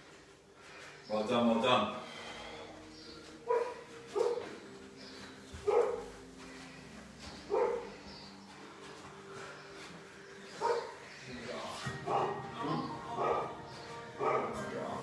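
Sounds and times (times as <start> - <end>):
dog barking: 3.5 - 4.5, 5.6 - 6.0, 7.5 - 7.9, 10.6 - 11.0, 12.0 - 13.6, 14.2 - 14.6.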